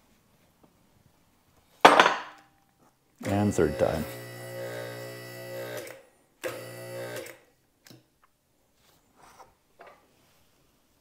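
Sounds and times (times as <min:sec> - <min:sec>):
hydraulic pump motor humming: 0:03.2 - 0:07.4.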